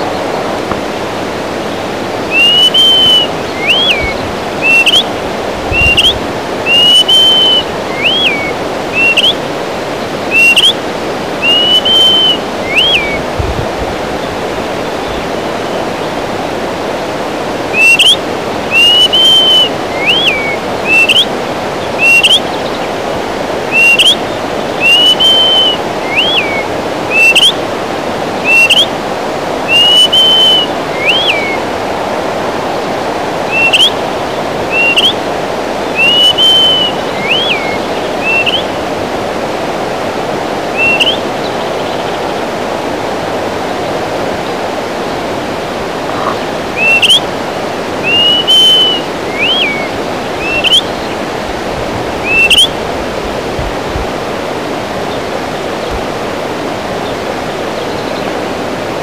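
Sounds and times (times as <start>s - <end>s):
bird whistled calls: 2.3s - 5.1s, 5.7s - 9.4s, 10.2s - 10.8s, 11.4s - 13.3s, 17.7s - 21.3s, 21.9s - 22.8s, 23.7s - 27.6s, 28.4s - 28.9s, 29.7s - 31.6s, 33.5s - 34.0s, 34.7s - 35.2s, 35.9s - 38.8s, 40.8s - 42.1s, 46.1s - 47.3s, 48.0s - 51.2s, 52.2s - 52.8s.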